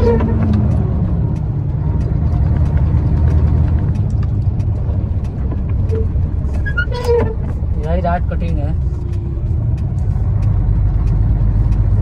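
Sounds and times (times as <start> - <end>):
truck diesel engine droning: 0.0 - 12.0.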